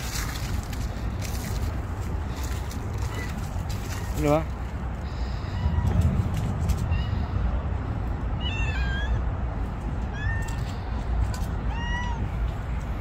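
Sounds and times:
steady low rumble: 0.0 - 13.0
cat meowing: 5.3 - 6.0, 8.3 - 9.3, 10.0 - 10.8, 11.4 - 12.4.

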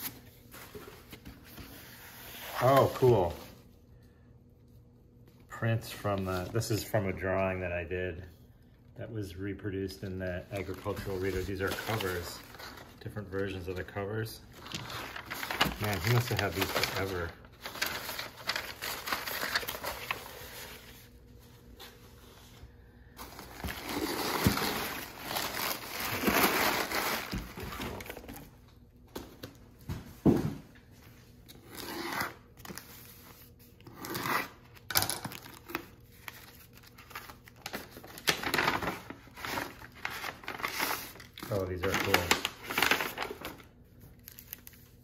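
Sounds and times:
paper rustling and crinkling: 10.0 - 28.5, 32.6 - 45.0.

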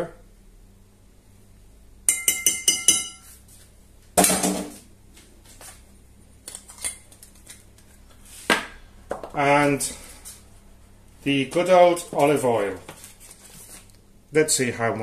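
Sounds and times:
teaspoon tapping glass bowl rim: 2.1 - 3.3.

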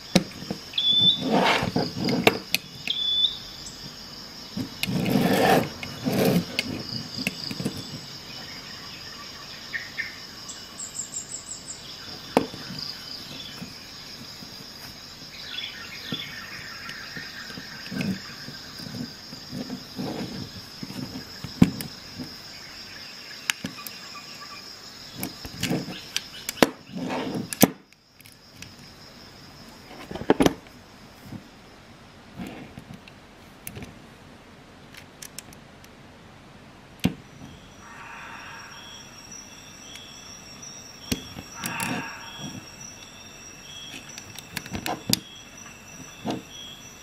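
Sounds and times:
faint steady high tone: 0.0 - 1.3, 2.5 - 4.3, 37.2 - 47.0.

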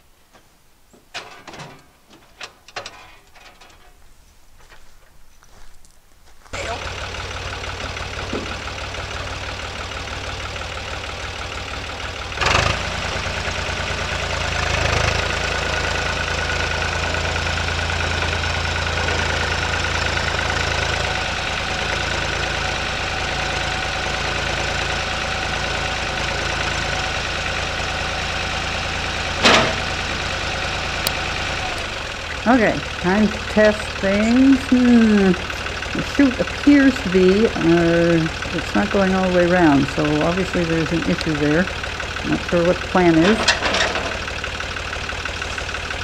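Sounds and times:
tractor engine running: 1.1 - 5.2, 6.5 - 46.0
sharp clunk: 29.4 - 29.9.

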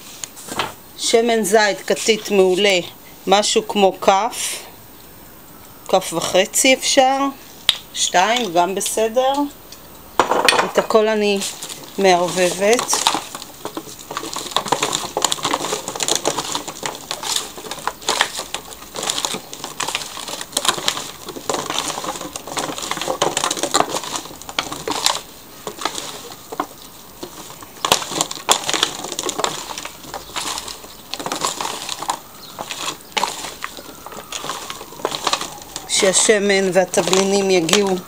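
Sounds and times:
vegetable pieces knocking: 10.2 - 38.0
aluminium foil crinkling: 10.7 - 38.0.

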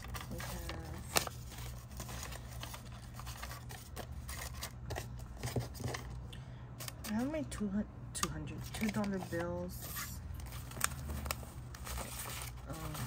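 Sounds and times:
paper bills rustling: 0.0 - 6.1, 6.8 - 7.4, 8.5 - 13.0.

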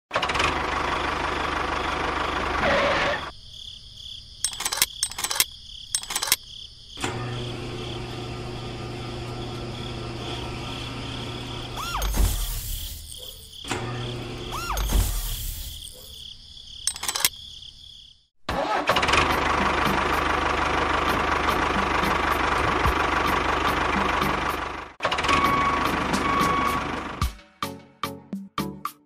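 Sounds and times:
crickets chirping: 3.2 - 18.3
sharp clicks: 4.4 - 6.4, 16.9 - 17.4.

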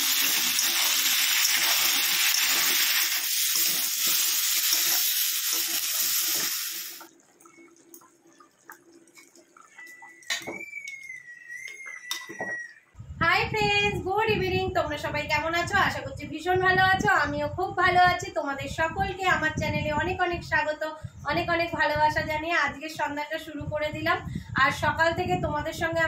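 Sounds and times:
vegetables sizzling in hot oil: 0.0 - 7.1
faint wavering whistle: 9.6 - 13.0.

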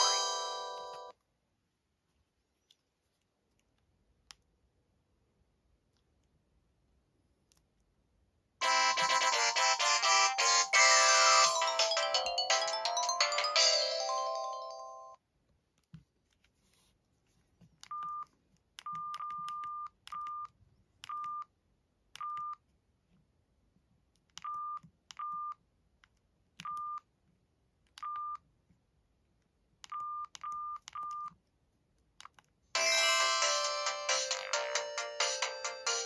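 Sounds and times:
phone keypad beeps: 17.9 - 21.5.

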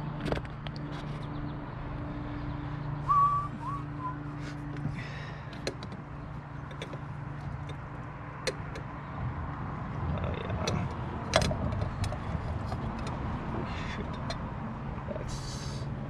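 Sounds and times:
steady low hum: 0.0 - 16.0
whistle-like chirp: 3.0 - 4.2.

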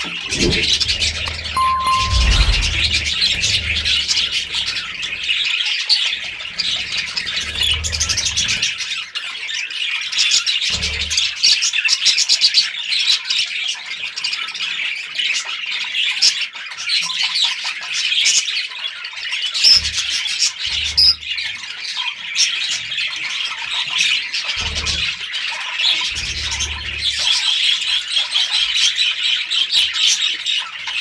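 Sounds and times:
low rumble: 0.4 - 4.7.

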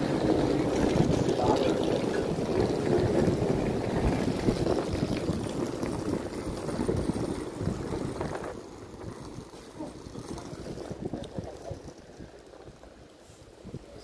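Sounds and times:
diesel train rumbling: 0.0 - 11.2.

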